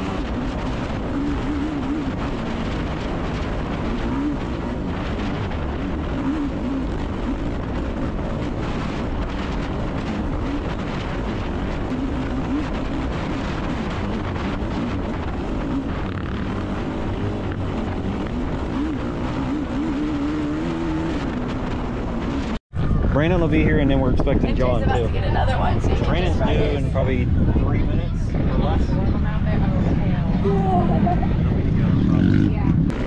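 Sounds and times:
quad engine revving: 0.0s - 22.6s, 31.7s - 33.0s
wind noise on microphone: 0.0s - 33.0s.

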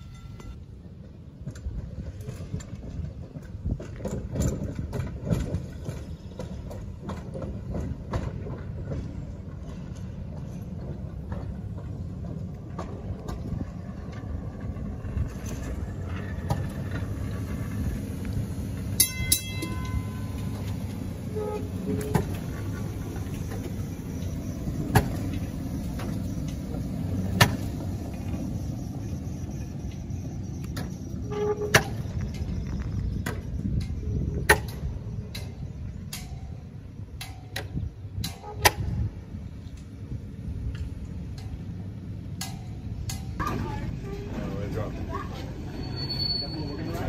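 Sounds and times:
high ringing tone: 0.0s - 0.6s, 19.0s - 26.8s, 28.1s - 34.1s
streetcar rumbling: 0.0s - 47.0s
wheels clacking over rail joints: 0.0s - 47.0s.

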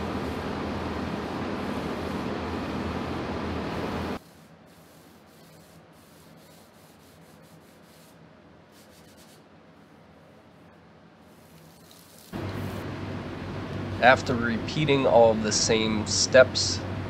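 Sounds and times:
loud rushing noise with low hum: 0.0s - 4.2s, 12.4s - 17.0s
hand sanding wood: 4.2s - 9.4s.

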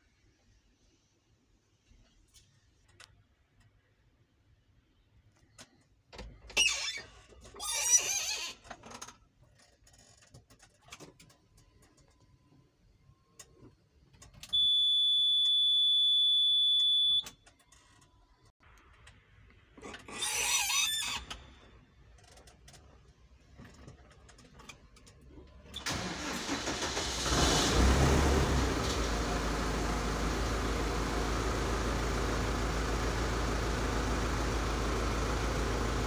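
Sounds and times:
diesel engine running: 25.9s - 36.0s.

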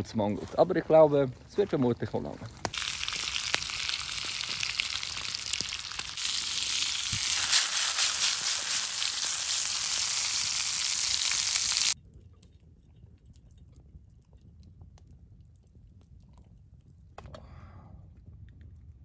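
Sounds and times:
meat sizzling in a frying pan: 2.7s - 12.0s.

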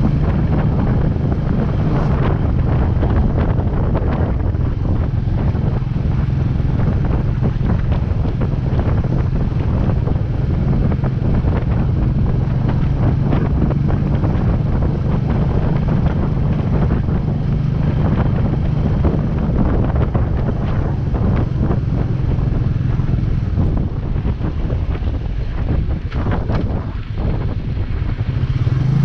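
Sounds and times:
motorcycle engine running: 0.0s - 29.0s
wind buffeting microphone: 0.0s - 29.0s.

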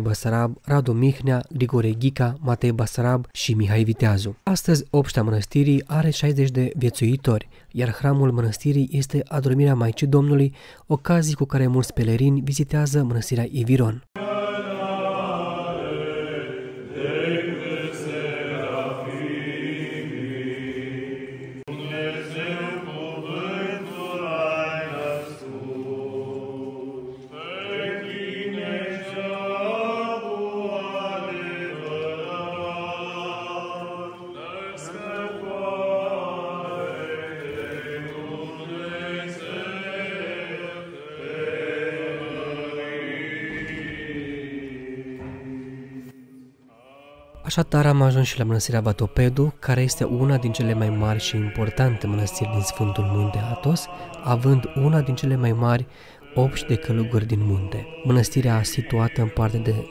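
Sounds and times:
voices chanting: 14.2s - 47.8s, 49.0s - 59.9s.

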